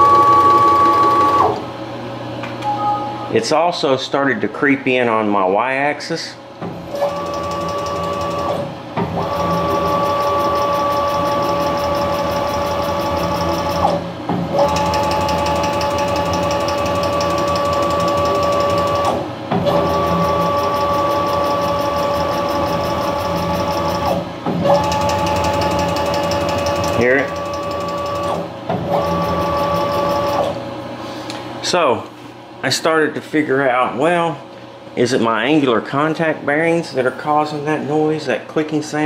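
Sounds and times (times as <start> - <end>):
stepper motors whining: 0.0 - 1.6.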